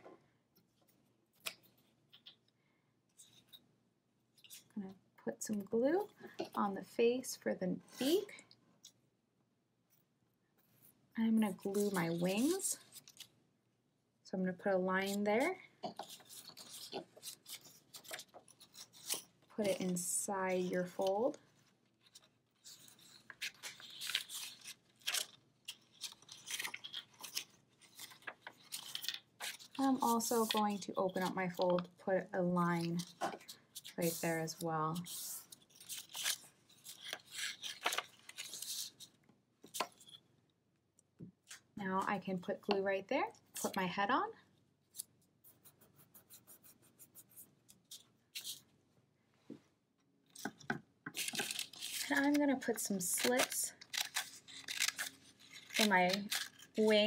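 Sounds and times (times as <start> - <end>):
paper rustling and crinkling: 15.8 - 20.0, 20.9 - 31.9, 32.8 - 40.2, 50.3 - 57.0
glue stick scratching paper: 45.0 - 48.6.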